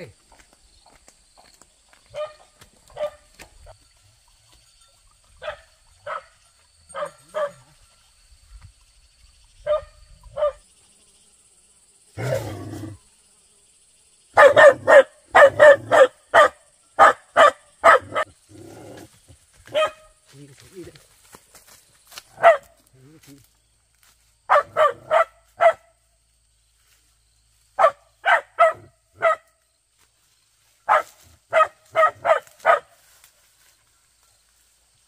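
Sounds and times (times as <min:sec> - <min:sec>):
dog barking: 0:02.1 - 0:03.3, 0:05.4 - 0:07.7, 0:09.7 - 0:10.6, 0:14.4 - 0:18.3, 0:19.7 - 0:20.1, 0:22.4 - 0:22.7, 0:24.5 - 0:25.9, 0:27.8 - 0:29.5, 0:30.9 - 0:33.0.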